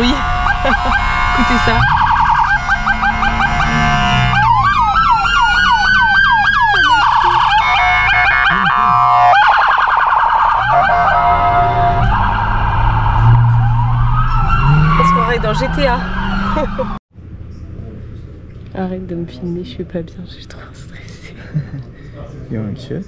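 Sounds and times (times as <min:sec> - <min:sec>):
electronic siren: 0:00.0 - 0:17.0.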